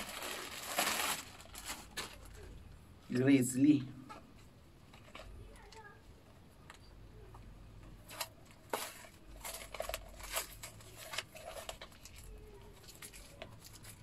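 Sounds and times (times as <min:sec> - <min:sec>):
grip tape package crinkling: 0:00.0 - 0:02.6, 0:08.1 - 0:14.0.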